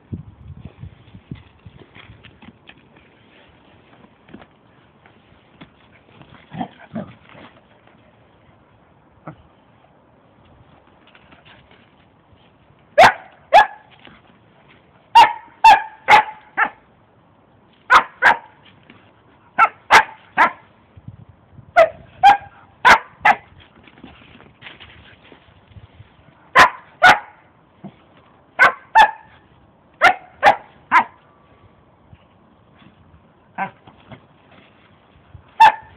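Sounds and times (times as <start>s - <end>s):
dog barking: 13.0s - 13.9s, 15.1s - 16.8s, 17.9s - 18.6s, 19.6s - 20.6s, 21.8s - 23.4s, 26.5s - 27.4s, 28.6s - 29.3s, 30.0s - 31.2s, 35.6s - 35.9s.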